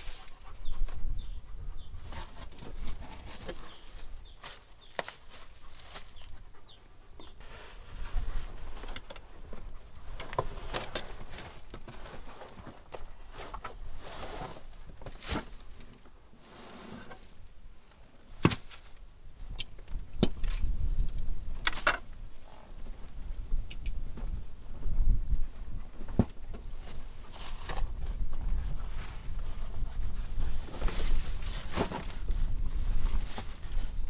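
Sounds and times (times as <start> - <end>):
boots shuffling on dry leaves: 3.2 - 6.2.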